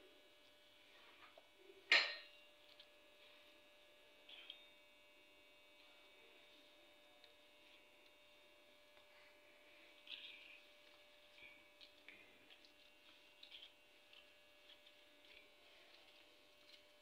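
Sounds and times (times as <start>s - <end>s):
steady electrical hum: 0.0s - 17.0s
kitchenware clink: 1.9s - 2.4s.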